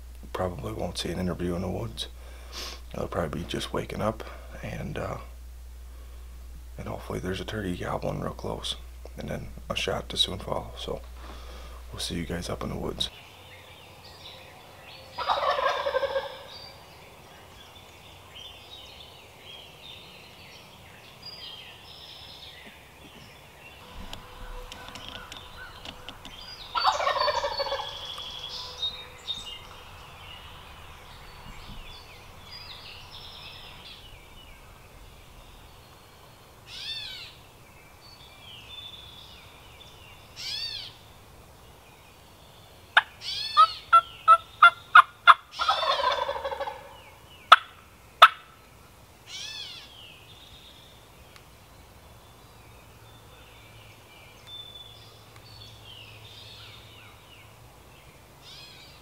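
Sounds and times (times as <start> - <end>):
faint songbird calls: 0.3 - 59.0
turkey gobbling: 15.2 - 16.5, 23.9 - 28.9, 43.0 - 48.5.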